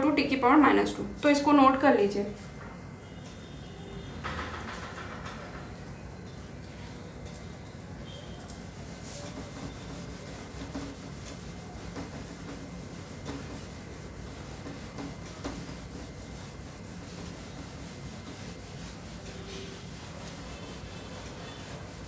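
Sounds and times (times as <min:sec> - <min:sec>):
eraser rubbing on whiteboard: 0:08.9 - 0:22.0.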